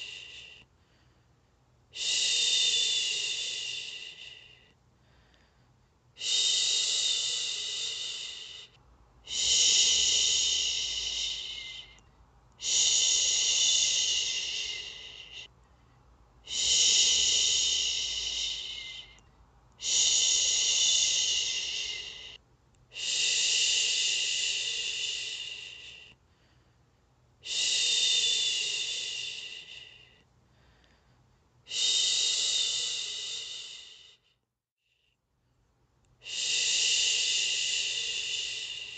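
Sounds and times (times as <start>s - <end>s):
woman shushing: 12.6s - 15.5s, 16.5s - 19.2s, 19.8s - 22.4s.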